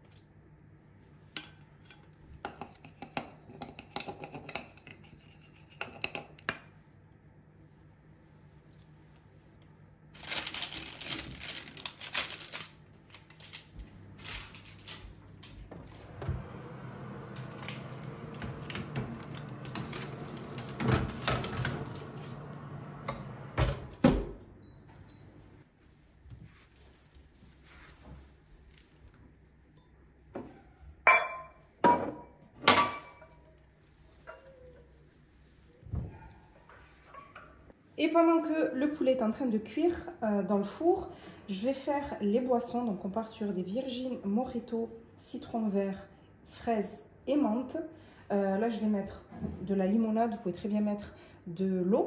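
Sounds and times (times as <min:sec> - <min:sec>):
low steady hum: 0:00.0 - 0:52.0
oven door opening: 0:15.6 - 0:24.4
oven door thumping shut: 0:23.2 - 0:24.4.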